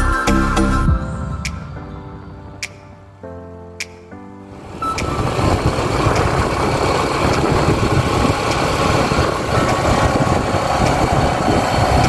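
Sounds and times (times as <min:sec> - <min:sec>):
wind rushing over microphone: 0:04.5 - 0:12.0
motorcycle engine running: 0:04.6 - 0:12.0.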